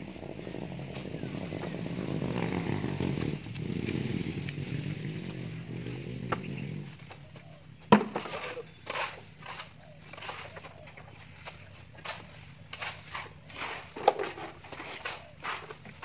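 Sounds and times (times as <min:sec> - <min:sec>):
small engine running: 0:00.0 - 0:07.0.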